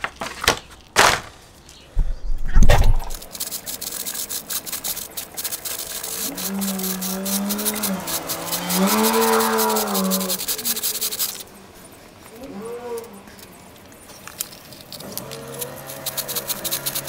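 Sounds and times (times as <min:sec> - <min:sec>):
brush scrubbing a chain: 0:03.0 - 0:12.4, 0:13.0 - 0:17.0.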